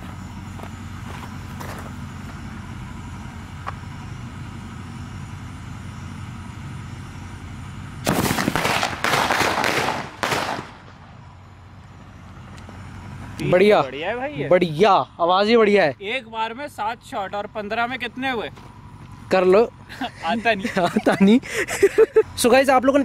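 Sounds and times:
steady low hum: 0.0s - 23.0s
firework shots: 8.0s - 11.3s.

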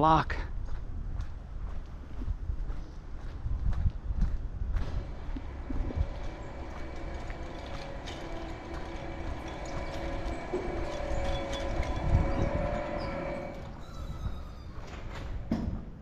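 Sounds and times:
footsteps on concrete: 0.3s - 6.4s
wind rumble on microphone: 0.4s - 16.0s
steady motor drone: 4.7s - 14.4s.

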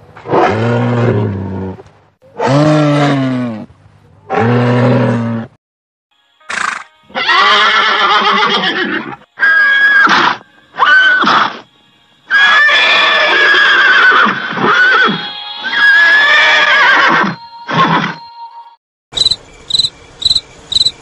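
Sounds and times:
horse neighing: 6.5s - 11.6s, 12.3s - 18.1s.

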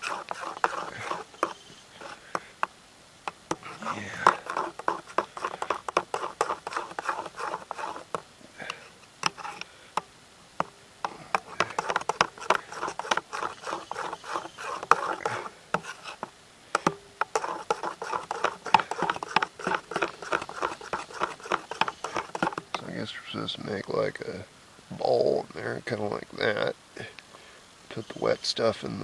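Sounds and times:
utensil stirring in bowl: 0.0s - 2.7s, 3.3s - 9.6s, 10.6s - 22.8s.

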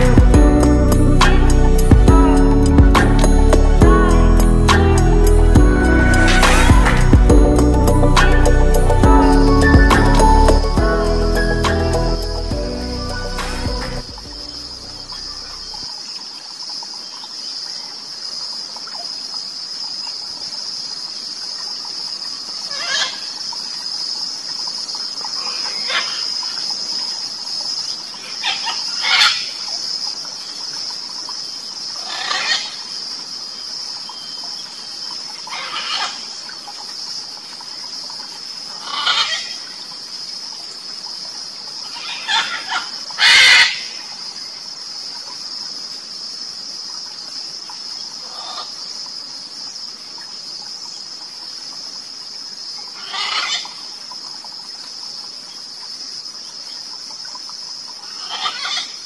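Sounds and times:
high-pitched insect drone: 0.0s - 15.9s
macaws squawking: 38.8s - 39.5s, 42.0s - 43.9s, 53.0s - 53.7s, 58.2s - 58.9s.

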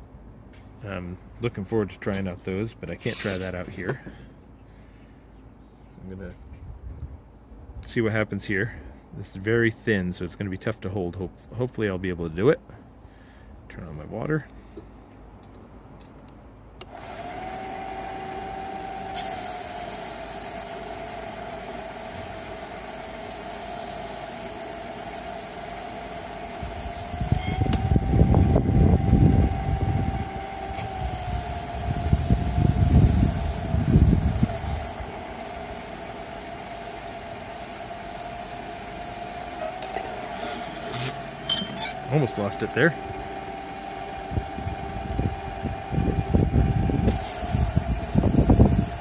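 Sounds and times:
motor whining: 16.8s - 49.0s
water hissing on polishing pad: 19.2s - 27.1s, 30.8s - 41.4s, 47.1s - 49.0s.

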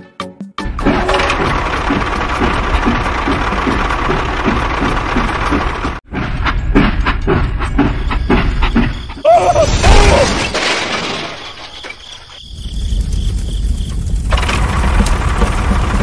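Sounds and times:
toy train clattering on track: 0.8s - 5.8s
loud crash: 9.6s - 11.9s.

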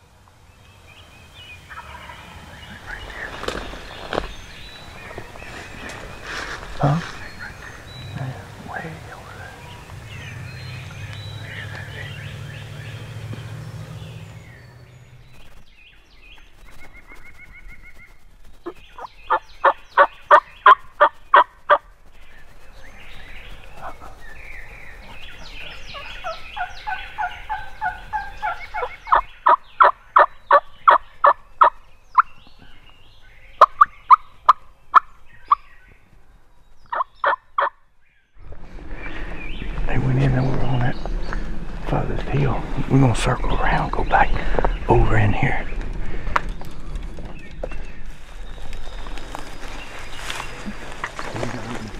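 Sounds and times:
turkey gobbling: 1.7s - 4.2s, 18.6s - 21.8s, 25.4s - 32.3s, 36.9s - 37.7s
turkey yelps: 36.9s - 37.7s.

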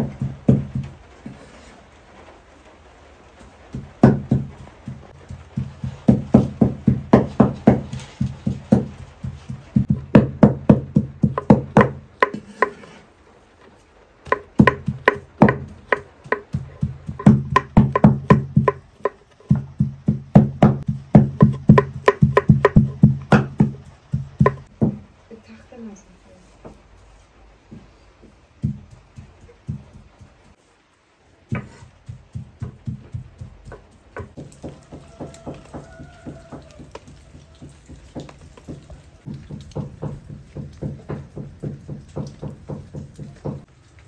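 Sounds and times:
knife chopping on wooden board: 3.7s - 13.0s, 14.3s - 25.0s, 31.5s - 43.7s.

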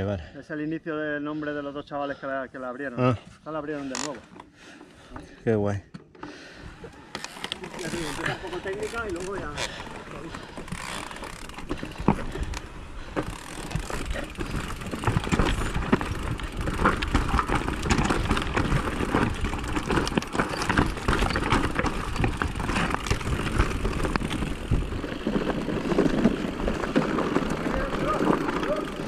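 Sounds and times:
bike rattling: 6.1s - 29.0s
tyres crunching over stones: 7.2s - 29.0s.

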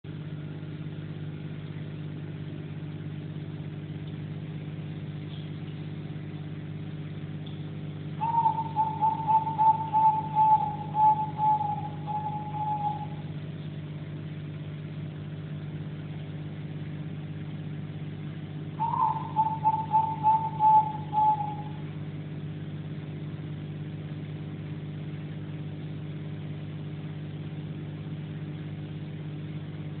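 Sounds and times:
steady low hum: 0.0s - 30.0s
short high hooting notes: 8.2s - 13.2s.

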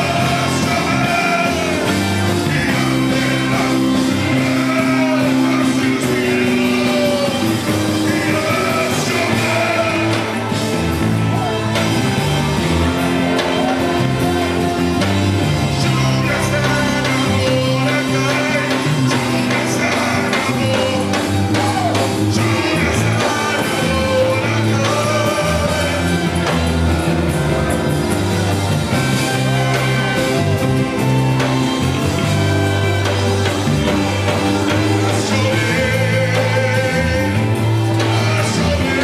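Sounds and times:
electric guitars: 0.0s - 39.0s
keyboards: 0.0s - 39.0s
trumpet: 0.0s - 39.0s
voices singing: 0.0s - 39.0s.

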